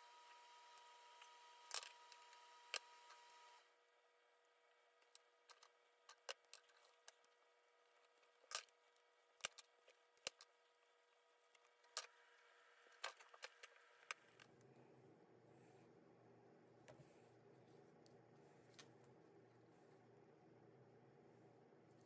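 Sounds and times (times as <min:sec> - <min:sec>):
low steady rumble: 0:14.3 - 0:22.0.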